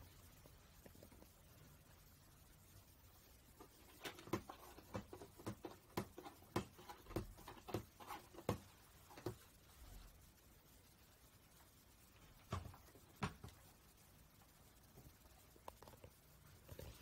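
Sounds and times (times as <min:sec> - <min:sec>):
cat claws scratching cardboard: 0:03.6 - 0:09.4.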